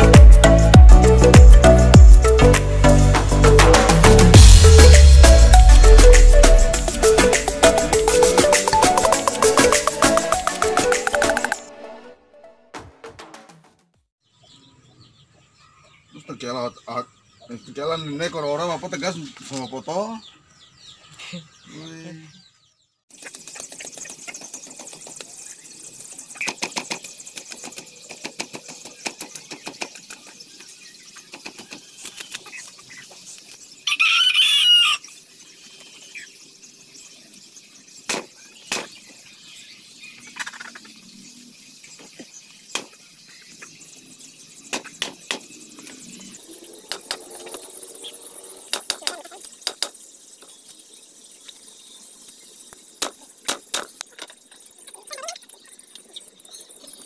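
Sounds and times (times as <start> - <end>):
chicken squawk: 33.8 - 35.1, 48.9 - 49.5.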